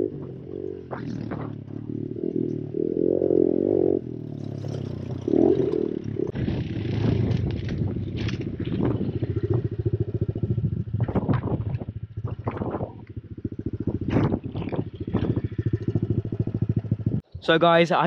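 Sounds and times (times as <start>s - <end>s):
small motorbike engine idling: 1.5s - 17.2s
crackles and rustles: 6.0s - 9.9s.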